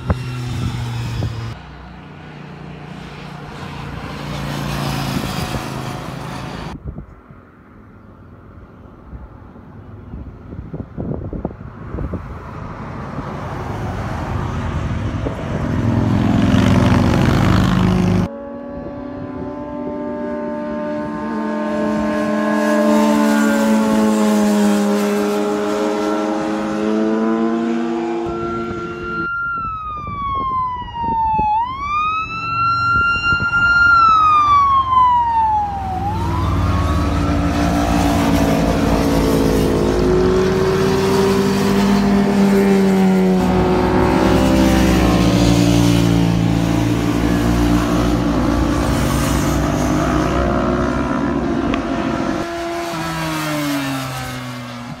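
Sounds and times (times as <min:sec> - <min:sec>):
motorcycles passing by: 0:00.0 - 0:06.8, 0:07.9 - 0:55.0
high whining tone: 0:17.8 - 0:53.9.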